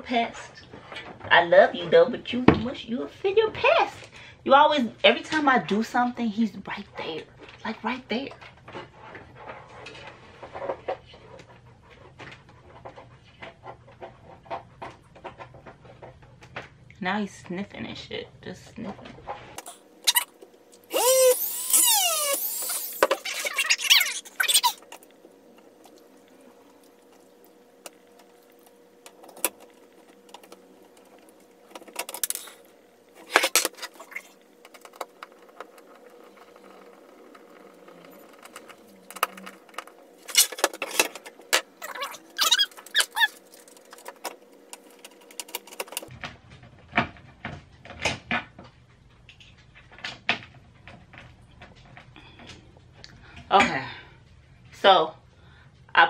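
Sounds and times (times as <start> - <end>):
rotary tool whining: 19.6 - 25.7, 27.8 - 46.1
screw squeaking and scraping: 20.1 - 20.3, 20.9 - 24.9, 36.3 - 43.9.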